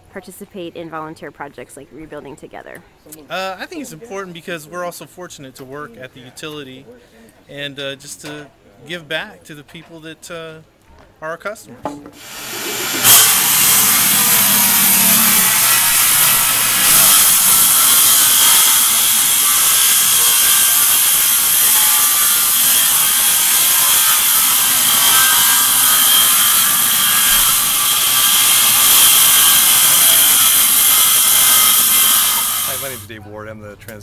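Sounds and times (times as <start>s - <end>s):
circular saw cutting floor: 12.2s - 33.1s
shop vacuum running: 12.2s - 33.1s.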